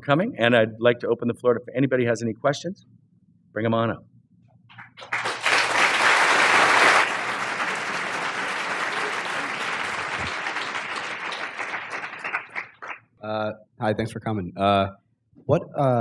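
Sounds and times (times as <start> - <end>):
audience applauding: 4.7 - 13.1.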